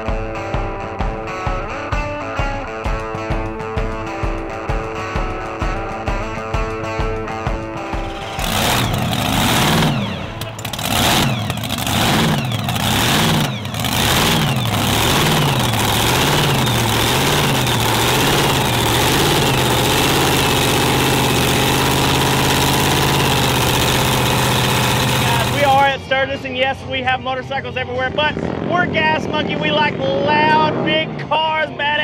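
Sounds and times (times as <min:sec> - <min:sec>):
music: 0:00.0 - 0:10.7, 0:25.6 - 0:32.0
engine revving loud and lumpy: 0:07.9 - 0:25.9.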